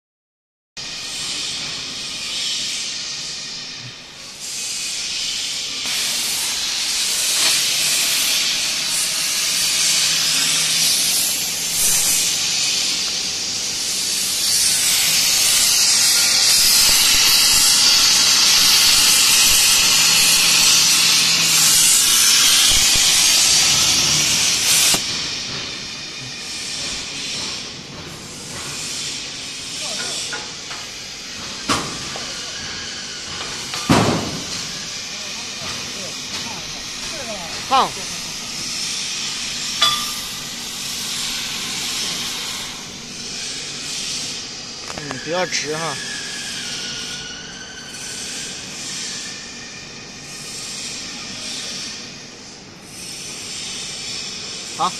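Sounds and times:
plasma cutter hissing: 0.8s - 47.1s.

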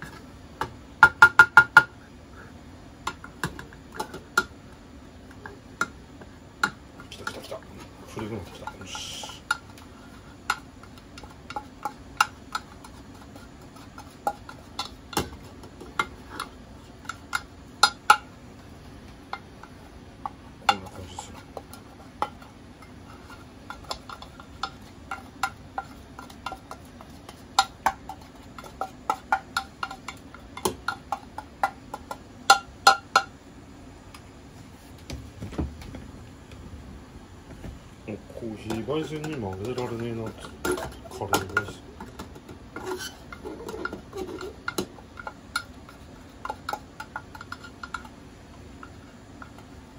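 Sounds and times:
utensil scraping metal pot: 7.0s - 33.3s, 38.1s - 49.9s.

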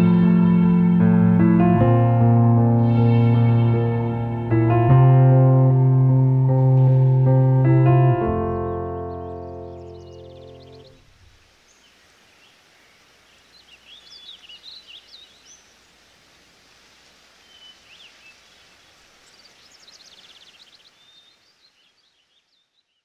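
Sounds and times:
faint outdoor hiss: 0.0s - 23.0s
birds chirping and trilling: 6.5s - 11.0s, 11.6s - 16.0s, 17.4s - 23.0s.

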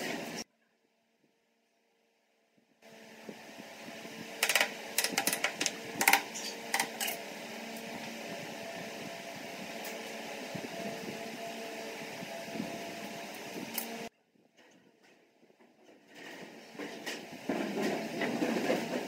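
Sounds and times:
machine-like hum: 2.8s - 14.8s
wooden blocks clicking and knocking: 4.4s - 6.2s.

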